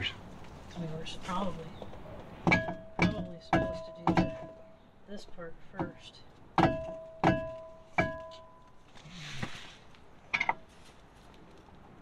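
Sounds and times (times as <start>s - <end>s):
metal-on-metal strikes: 2.4s - 4.8s, 6.6s - 8.6s
short rustle: 8.7s - 11.9s.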